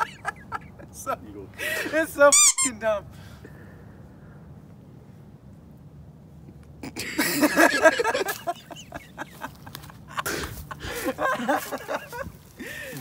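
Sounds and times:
man laughing: 0.0 - 2.2, 6.8 - 13.0.

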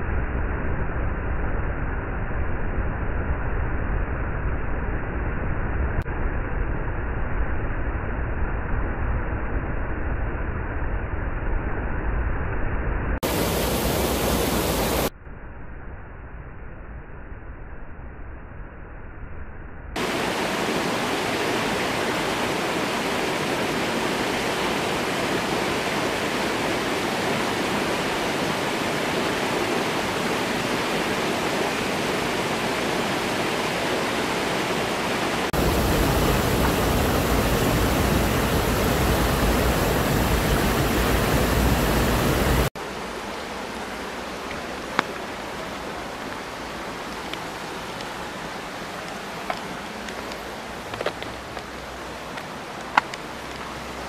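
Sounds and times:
stream rushing over boulders: 13.2 - 15.1, 20.0 - 54.0.

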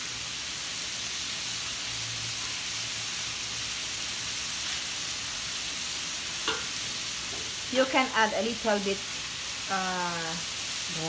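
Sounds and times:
meat sizzling in a wok: 0.0 - 11.0.

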